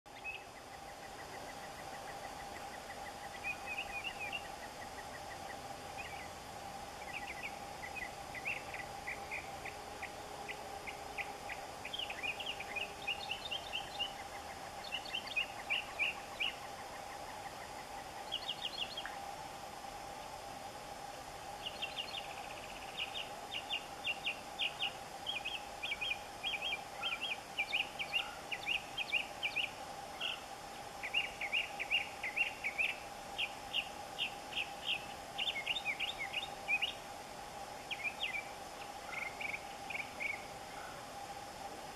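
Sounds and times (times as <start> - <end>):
mockingbird singing: 0.1 - 6.4, 7.0 - 19.2, 21.6 - 37.0, 37.9 - 41.0
steady hum: 0.1 - 41.9.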